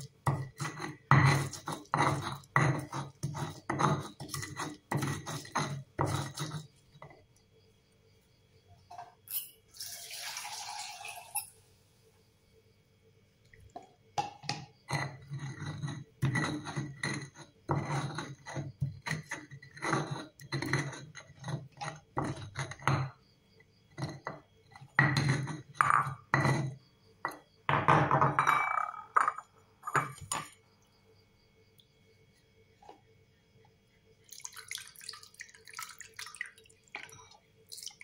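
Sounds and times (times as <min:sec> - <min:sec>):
stone pestle scraping in mortar: 0:00.0 - 0:07.1, 0:14.8 - 0:23.0, 0:23.9 - 0:27.4.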